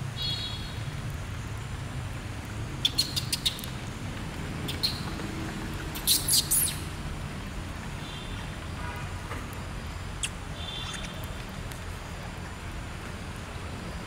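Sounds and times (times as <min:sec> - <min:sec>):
animal squeaks and chirps: 0:02.8 - 0:03.7, 0:04.7 - 0:05.0, 0:06.0 - 0:06.9.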